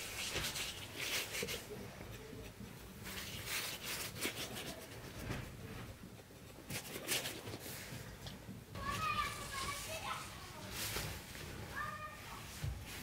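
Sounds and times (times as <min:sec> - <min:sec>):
rolling pin rubbing on dough: 0:00.0 - 0:08.0.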